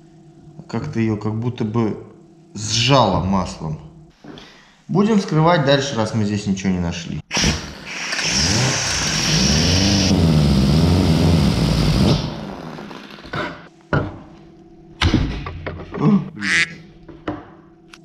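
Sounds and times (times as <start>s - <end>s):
angle grinder cutting metal: 7.3s - 13.7s.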